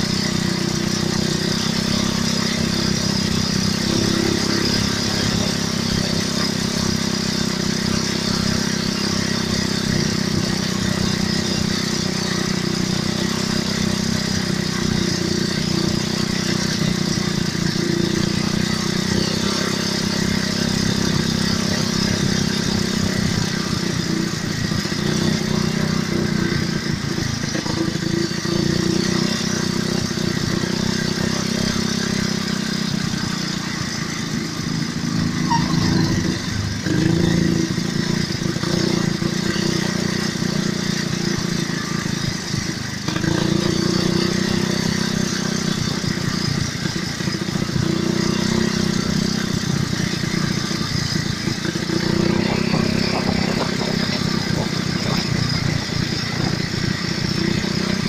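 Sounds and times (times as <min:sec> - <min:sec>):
quad bike engines running: 0:00.0 - 0:58.0.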